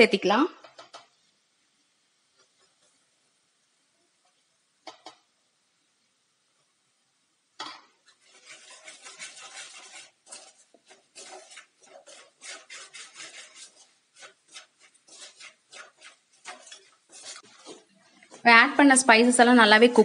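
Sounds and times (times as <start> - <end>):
skimmer scraping metal pan: 8.0 - 18.6.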